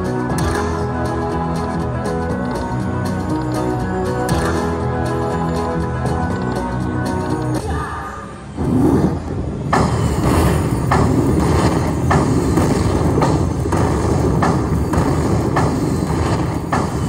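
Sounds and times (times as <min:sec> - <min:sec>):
slot machine game music: 0:00.0 - 0:07.6
low rumble: 0:08.4 - 0:17.0
sharp hits: 0:08.6 - 0:17.0.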